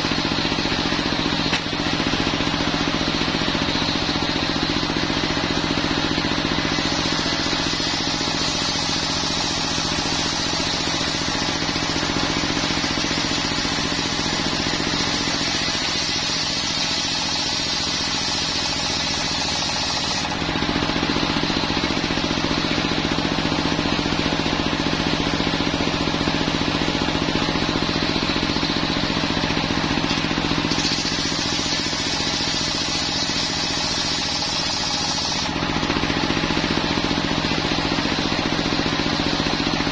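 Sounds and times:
free-spinning saw blade: 0:00.0 - 0:39.9
stationary engine running: 0:00.0 - 0:39.9
saw blade cutting wood hiss: 0:06.7 - 0:12.0, 0:12.8 - 0:20.4, 0:30.6 - 0:35.6.

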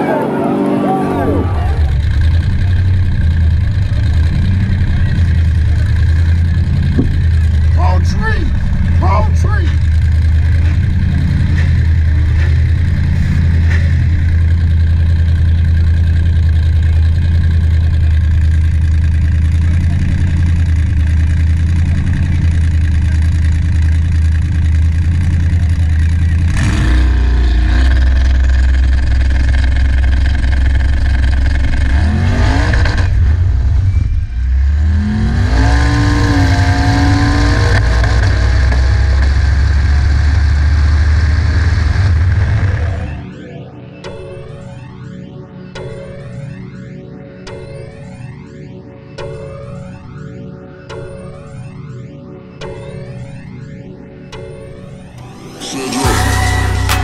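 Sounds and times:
race car engine revving: 0:00.0 - 0:43.3, 0:55.1 - 0:57.0.

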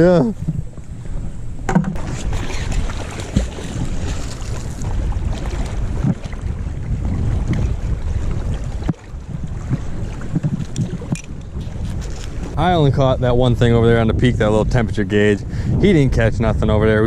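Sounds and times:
wind rumbling on microphone: 0:00.0 - 0:17.0.

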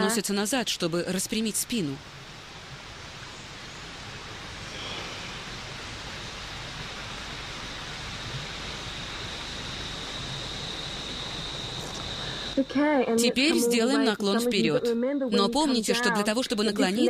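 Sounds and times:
faint high whine: 0:00.0 - 0:17.0
rushing hiss: 0:02.1 - 0:12.6.

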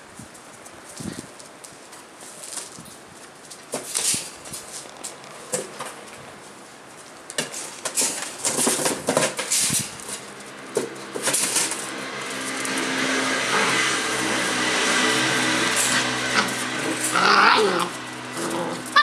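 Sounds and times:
puppies scrabbling and clattering: 0:06.9 - 0:19.0.

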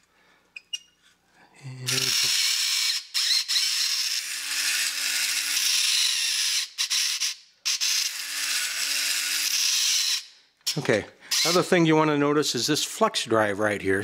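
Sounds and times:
toy robot motor rasping: 0:01.9 - 0:11.7.

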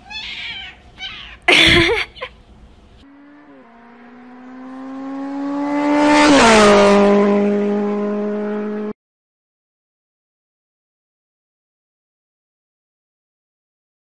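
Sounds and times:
car passing by: 0:03.0 - 0:08.9.

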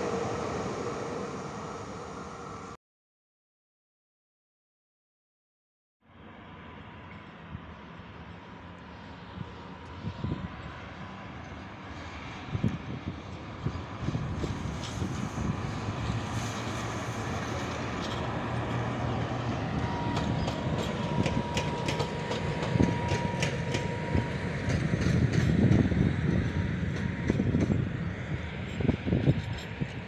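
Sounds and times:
locomotive rumble: 0:00.0 - 0:02.8, 0:12.8 - 0:30.0
steady whine: 0:00.0 - 0:02.8
wheels clicking over rail joints: 0:19.8 - 0:27.9.

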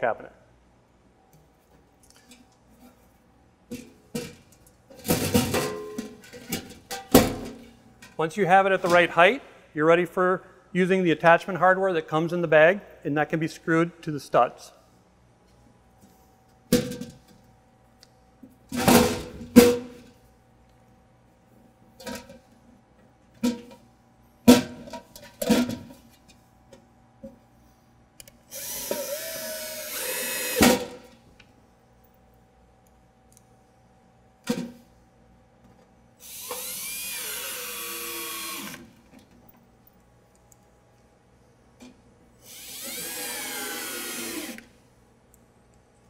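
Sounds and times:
drill driving screws into wood: 0:28.5 - 0:31.0, 0:36.2 - 0:38.9, 0:42.4 - 0:44.7.

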